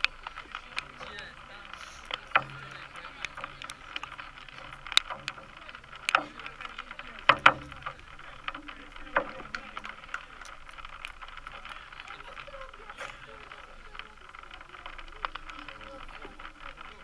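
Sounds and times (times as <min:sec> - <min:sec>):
sharp knocks: 0:02.1 - 0:11.5.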